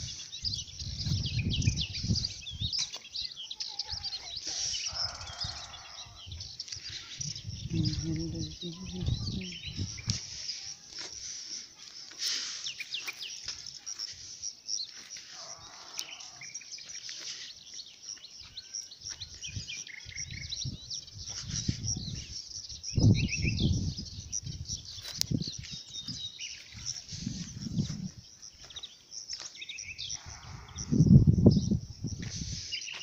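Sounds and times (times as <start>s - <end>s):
small birds chirping: 0.0s - 33.0s
low rumbles on microphone: 7.2s - 10.2s.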